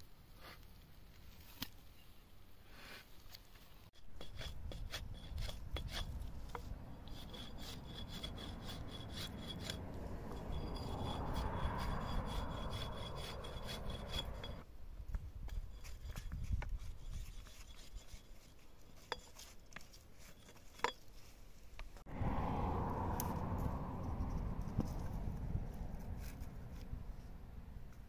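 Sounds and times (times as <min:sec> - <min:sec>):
hatchet scraping wooden stick: 0:04.0 - 0:14.7, 0:15.4 - 0:21.3.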